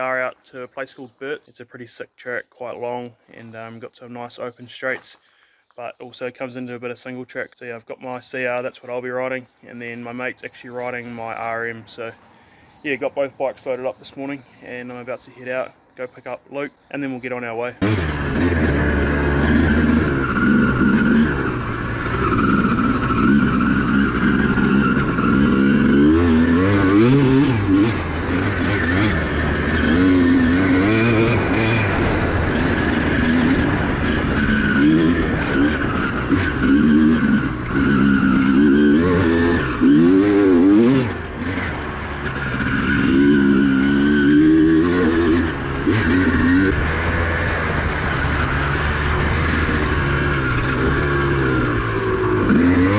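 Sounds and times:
two-stroke motorcycle engine revving: 0:17.8 - 0:52.9.

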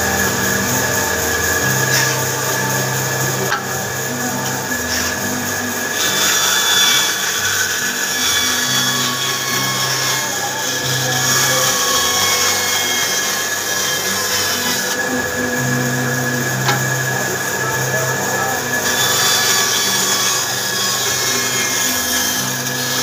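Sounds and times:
power tool cutting wood: 0:00.0 - 0:23.0.

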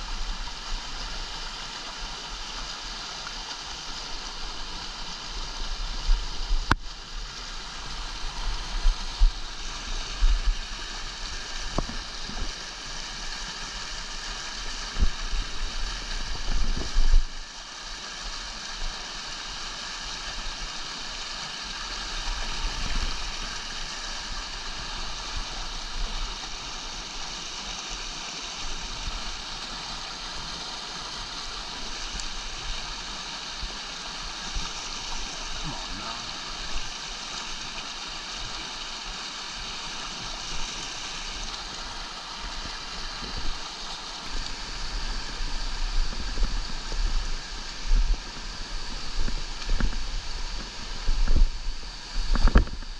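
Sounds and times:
creek rushing over boulders: 0:00.0 - 0:52.9.

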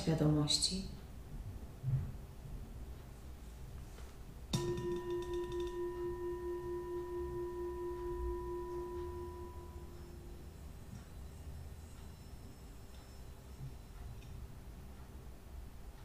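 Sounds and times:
singing bowl struck with mallet: 0:04.5 - 0:14.4
singing bowl ringing tone: 0:04.5 - 0:14.6.

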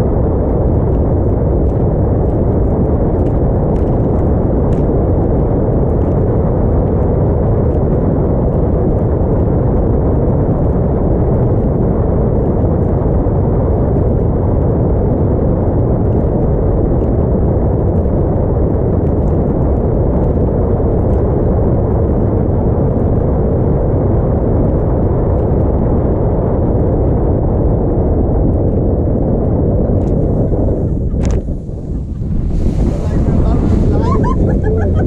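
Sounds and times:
motorboat low rumble: 0:00.0 - 0:35.0
wind buffeting microphone: 0:00.0 - 0:35.0.

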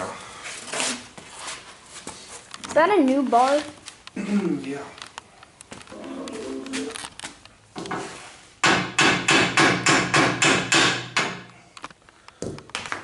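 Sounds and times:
hammer striking steel: 0:08.6 - 0:11.5.

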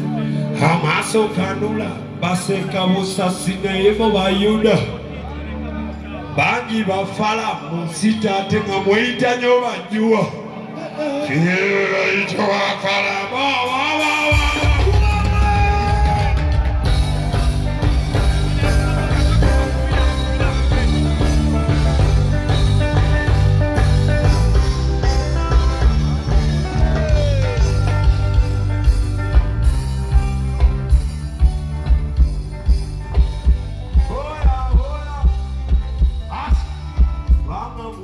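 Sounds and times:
live band playing amplified music: 0:00.0 - 0:38.0
person singing: 0:10.6 - 0:17.0, 0:26.2 - 0:28.2.

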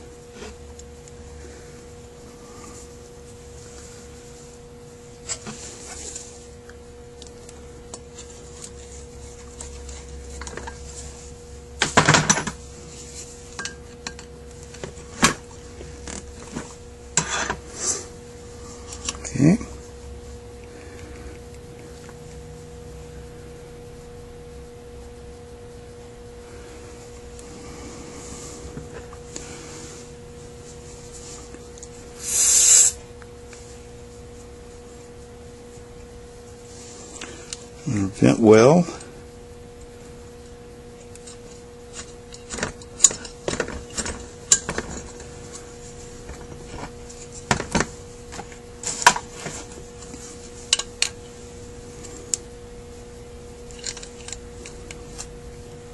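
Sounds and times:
steady low hum: 0:00.0 - 0:55.9
short loud hiss: 0:32.2 - 0:33.0.

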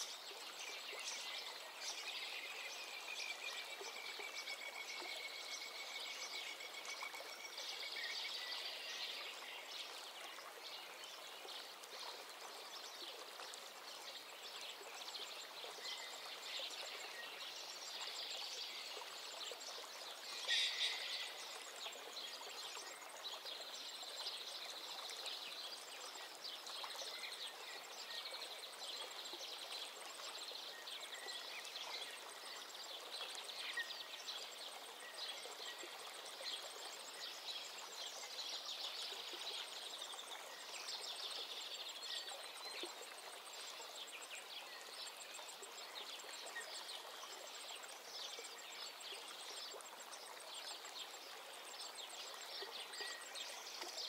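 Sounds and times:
bird calls: 0:20.3 - 0:21.5.

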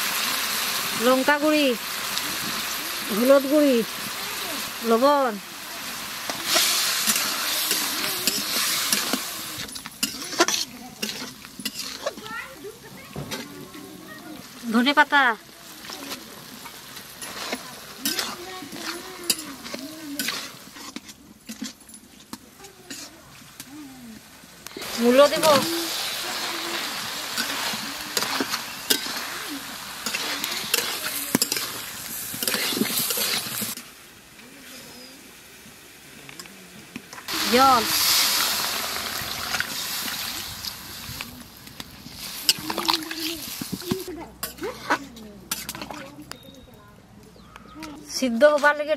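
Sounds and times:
food sizzling in hot oil: 0:00.0 - 0:46.0
metal spatula scraping pan: 0:06.3 - 0:12.3, 0:16.2 - 0:23.2, 0:24.8 - 0:33.8, 0:44.4 - 0:46.1.

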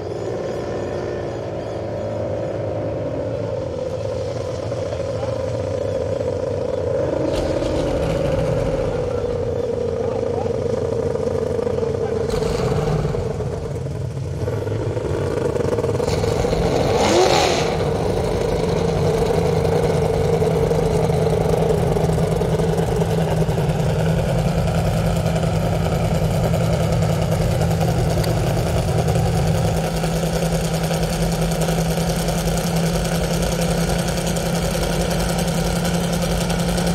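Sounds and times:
powerboat engine passing by: 0:00.0 - 0:36.9.

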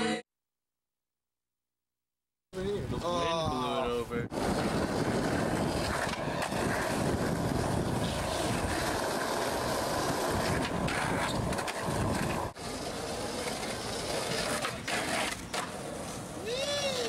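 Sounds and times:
skateboard wheels on asphalt: 0:04.3 - 0:17.0.

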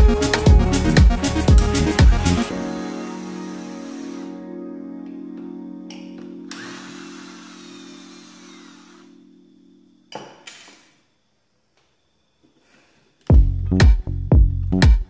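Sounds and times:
cordless drill driving a screw: 0:06.5 - 0:09.1.

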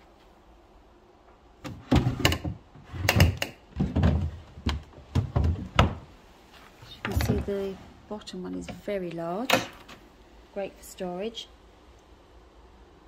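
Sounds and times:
wooden drawers sliding and knocking: 0:01.6 - 0:06.2, 0:06.8 - 0:08.9.

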